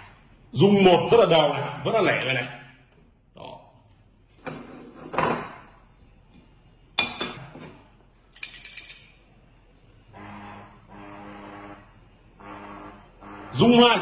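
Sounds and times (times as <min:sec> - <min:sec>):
coin tokens rattling: 0:08.4 - 0:09.1
low electric buzz: 0:10.1 - 0:14.0.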